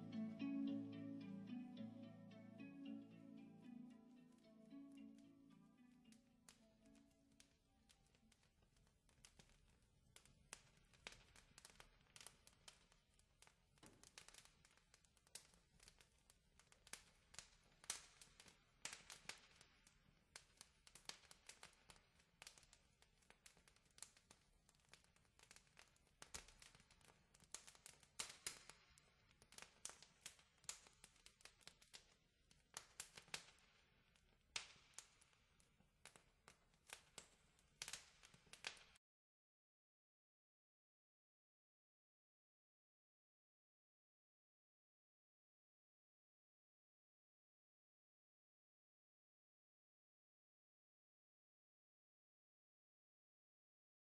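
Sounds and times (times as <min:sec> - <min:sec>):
faint crackling clicks: 0:06.0 - 0:39.0.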